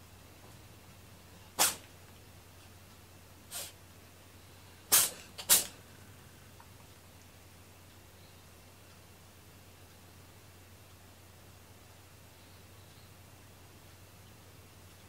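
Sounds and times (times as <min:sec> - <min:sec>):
cat sneezing: 0:01.5 - 0:01.9, 0:03.5 - 0:03.8, 0:04.9 - 0:05.8.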